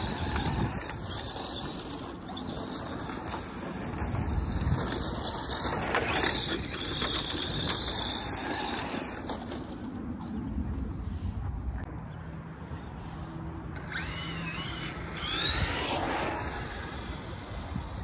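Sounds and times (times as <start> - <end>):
electric motor and drivetrain whining: 0.0 - 10.0, 13.7 - 18.0.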